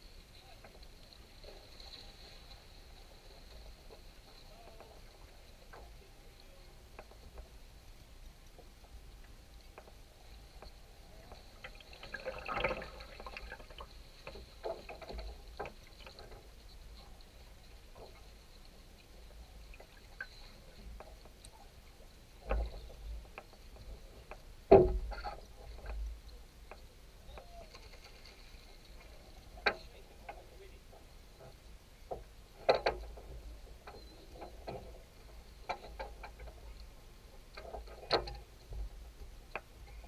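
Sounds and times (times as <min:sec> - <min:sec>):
water lapping and trickling: 0:00.0 - 0:40.0
boat knocks and clunks: 0:09.7 - 0:18.3, 0:22.4 - 0:27.7, 0:29.0 - 0:40.0.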